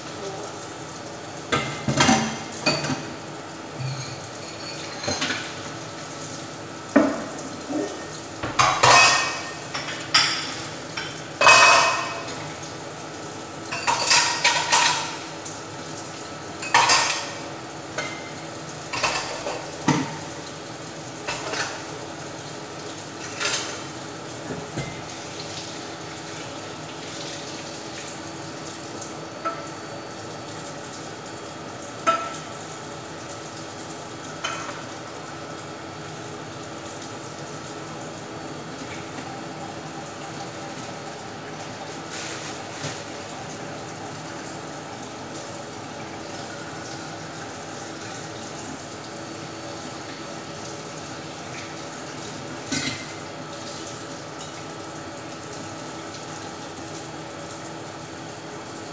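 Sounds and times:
tap water running: 0:00.0 - 0:58.9
dishes clattering in steel sink: 0:01.5 - 0:03.1, 0:03.8 - 0:05.6, 0:06.9 - 0:12.4, 0:13.7 - 0:15.2, 0:16.6 - 0:17.4, 0:18.9 - 0:20.3, 0:32.0 - 0:32.5, 0:34.4 - 0:34.8, 0:52.7 - 0:53.2.

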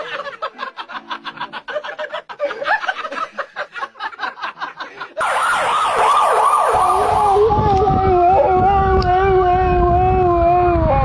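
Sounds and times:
wailing with sliding pitch: 0:05.2 - 0:11.0.

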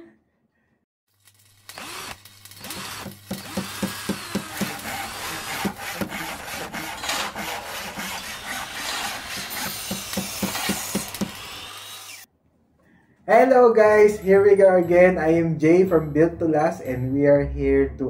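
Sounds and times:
rhythmic scraping strokes on wood: 0:02.8 - 0:12.3.

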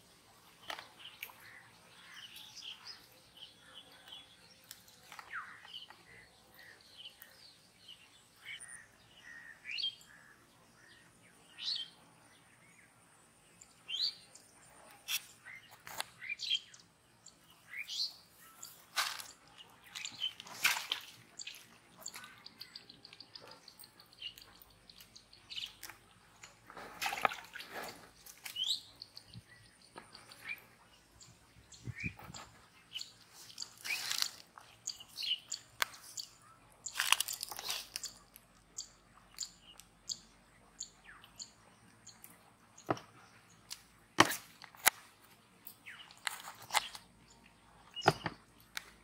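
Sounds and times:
bird trill and chirps: 0:13.6 - 0:26.6, 0:27.6 - 0:43.7, 0:45.6 - 0:48.5
hands rustling leafy plants: 0:18.7 - 0:22.3, 0:33.3 - 0:34.7.

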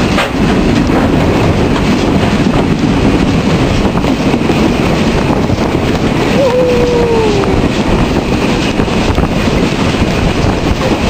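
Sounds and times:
steam locomotive running: 0:00.0 - 0:11.0
train wheels on rails: 0:00.0 - 0:11.0.

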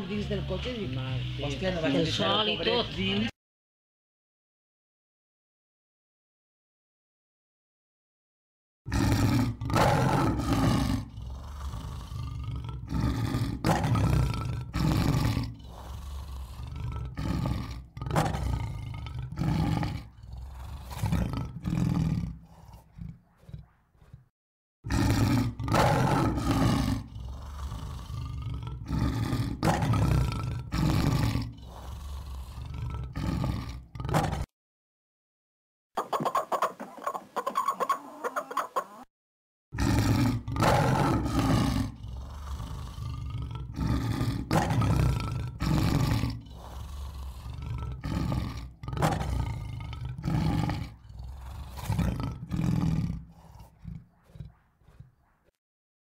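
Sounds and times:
roaring and growling: 0:08.9 - 0:34.5, 0:39.8 - 0:55.6.

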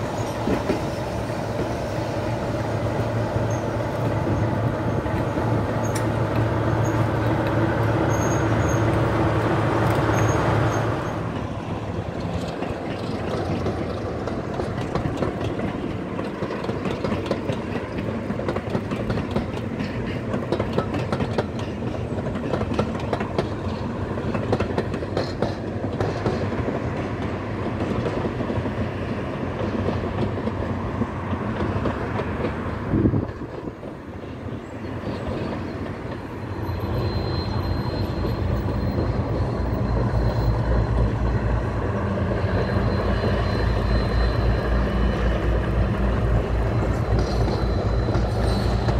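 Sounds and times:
wheels clattering over rail joints: 0:00.0 - 0:48.9.

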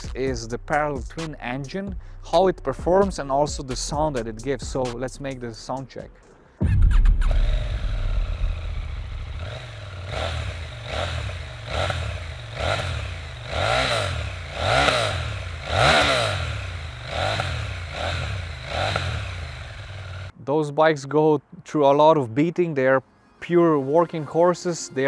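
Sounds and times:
motorcycle engine idling and revving: 0:06.6 - 0:20.3.

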